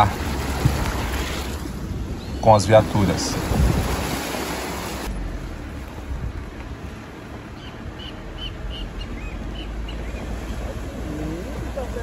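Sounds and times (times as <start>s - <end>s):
vehicle rumble: 0.0s - 12.0s
bird chirping: 7.5s - 10.6s.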